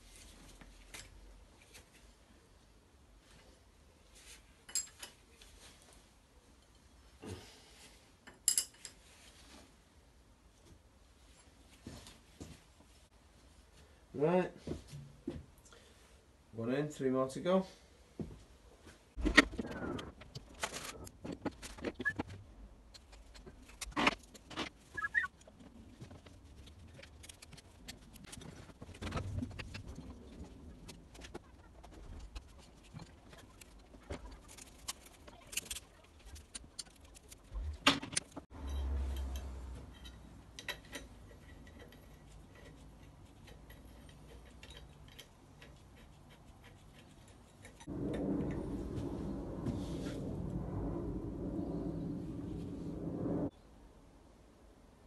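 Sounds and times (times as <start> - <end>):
metal engine parts clinking: 38.2 - 42.7
low rumble: 47.9 - 53.6.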